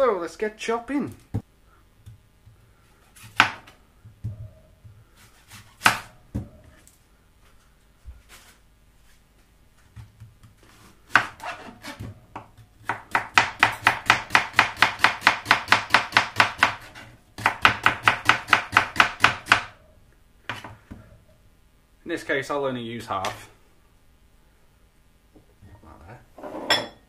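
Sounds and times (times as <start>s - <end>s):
knife chopping onion on board: 3.2s - 6.6s, 10.0s - 19.7s.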